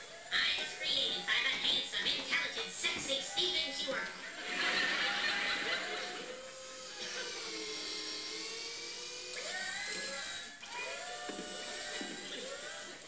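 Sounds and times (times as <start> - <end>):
electronic servo whine: 3.2 - 13.0.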